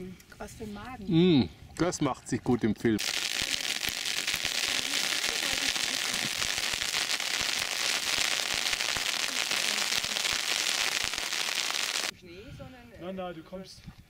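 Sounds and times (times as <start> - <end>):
rain pattering: 3.0 - 12.1.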